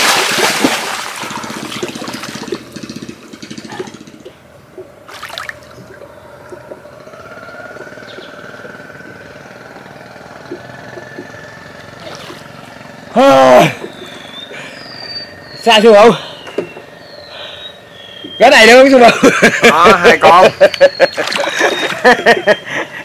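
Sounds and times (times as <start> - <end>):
water sloshing and splashing: 0.0 - 4.1, 4.7 - 7.0, 10.3 - 14.2, 21.1 - 22.2
faint steady drone: 1.2 - 19.0.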